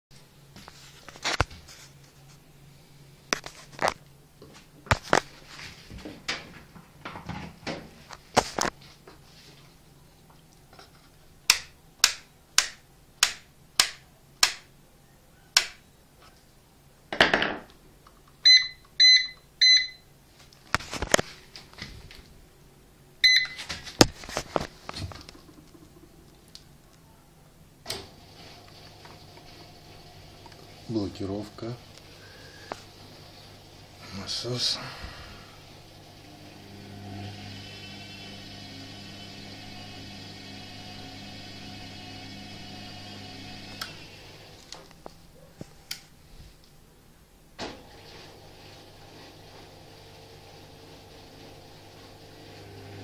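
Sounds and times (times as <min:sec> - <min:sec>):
short electronic beeps: 0:18.5 - 0:20.0, 0:23.2 - 0:23.6.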